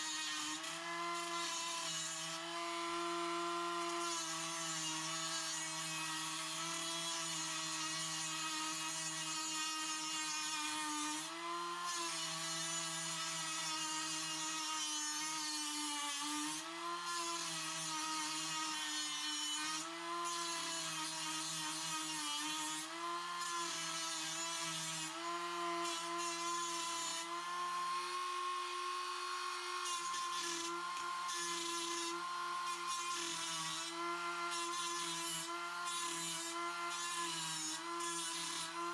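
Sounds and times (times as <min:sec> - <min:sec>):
rotary tool grinding metal: 0:00.0 - 0:38.9.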